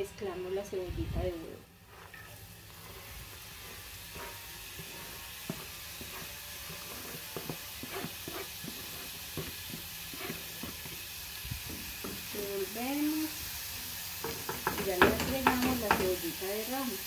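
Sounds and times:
garlic sizzling in hot oil: 0:00.0 - 0:17.0
wooden spoon scraping container: 0:01.8 - 0:12.4.

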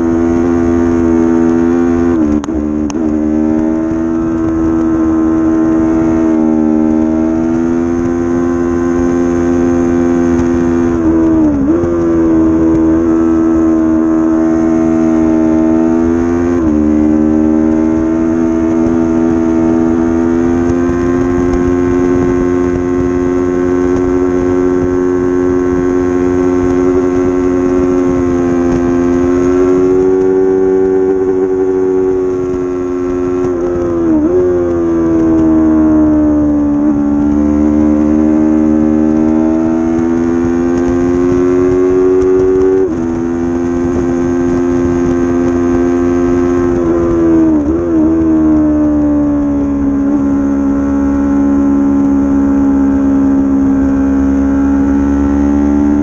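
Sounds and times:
motorcycle engine revving high: 0:00.0 - 0:56.0.

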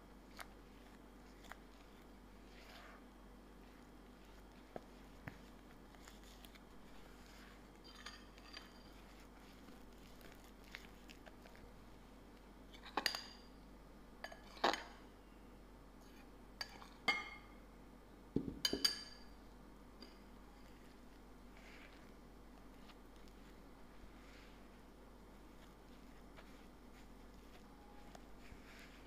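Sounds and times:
spatula scraping dough in bowl: 0:00.3 - 0:11.6.

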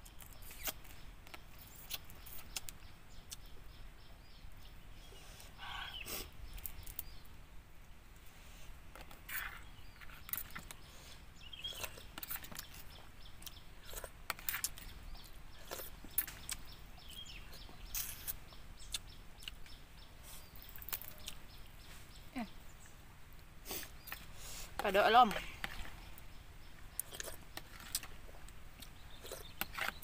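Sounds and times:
bird calling: 0:05.0 - 0:06.2
lip smacks and wet chewing: 0:17.9 - 0:19.8.

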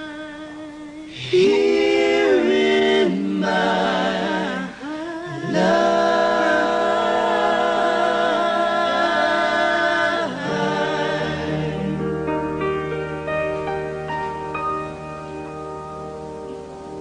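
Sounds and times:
voices singing in harmony: 0:00.0 - 0:12.7.

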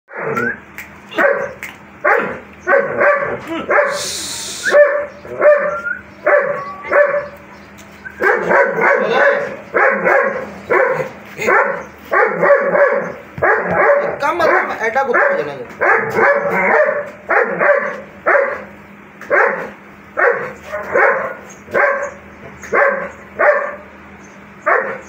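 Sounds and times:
dog barking: 0:01.1 - 0:04.1, 0:04.7 - 0:07.4, 0:08.2 - 0:23.9, 0:24.6 - 0:25.0.

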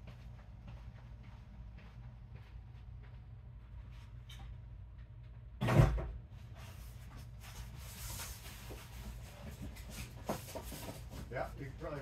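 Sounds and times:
steady low hum: 0:00.0 - 0:12.0
rustling and light knocks: 0:06.4 - 0:12.0.

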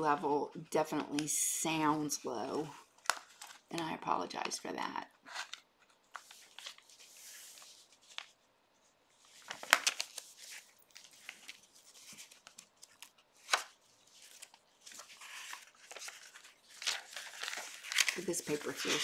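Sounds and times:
paper pages rustling and flapping: 0:02.8 - 0:04.6, 0:05.2 - 0:08.5, 0:09.1 - 0:19.0.

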